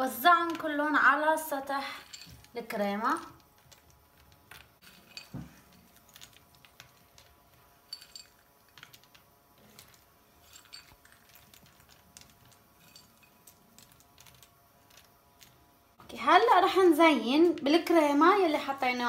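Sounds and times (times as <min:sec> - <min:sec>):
nuts clicking in ceramic dish: 0:02.0 - 0:15.7.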